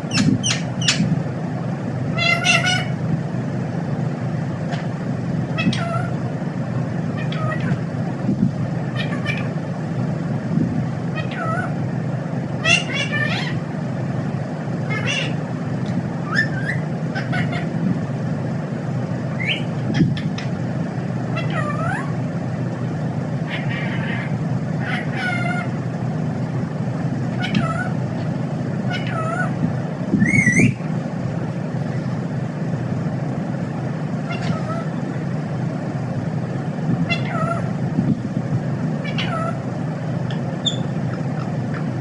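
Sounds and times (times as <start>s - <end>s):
parakeet calling: 0.0s - 1.2s, 2.0s - 3.1s, 4.6s - 6.4s, 7.0s - 7.9s, 8.6s - 9.8s, 11.0s - 13.9s, 14.7s - 18.0s, 19.2s - 22.2s, 23.3s - 25.9s, 27.2s - 30.9s, 34.1s - 35.4s, 37.0s - 37.9s, 38.9s - 42.0s
steady low hum: 0.0s - 42.0s.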